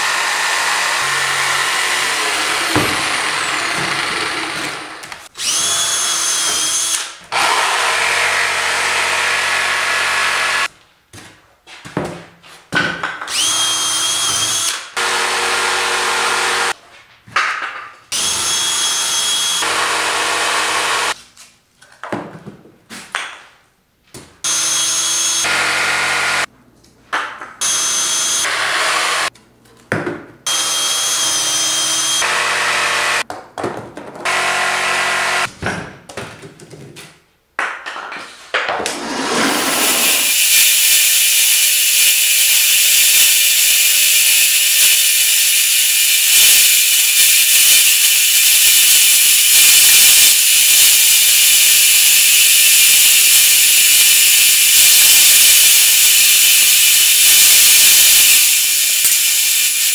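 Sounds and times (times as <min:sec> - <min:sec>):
cordless drill boring holes: 0:00.0 - 0:10.7, 0:13.3 - 0:16.8, 0:18.1 - 0:21.2, 0:24.4 - 0:26.5, 0:27.6 - 0:29.3, 0:30.5 - 0:33.2, 0:34.3 - 0:35.5, 0:39.4 - 0:59.9
jigsaw cutting plastic sheet: 0:00.0 - 0:10.7, 0:38.9 - 0:59.9.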